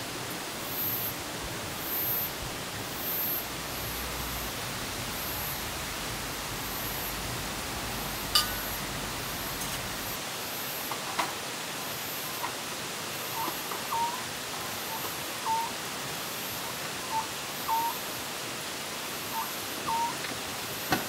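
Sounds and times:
hiss of rain or running water: 0.0 - 21.0.

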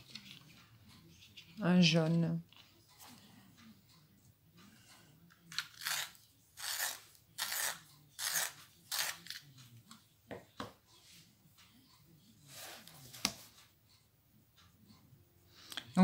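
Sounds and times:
pencils scratching and crunching: 5.5 - 9.4.

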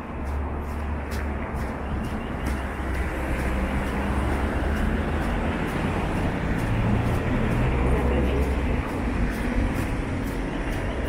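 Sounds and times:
footsteps: 0.0 - 11.0
traffic rumble on slushy road: 0.0 - 11.0.

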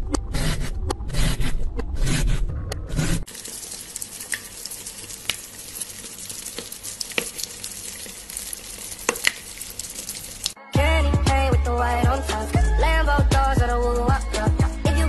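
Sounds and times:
crackling fizz in water: 3.3 - 10.6.

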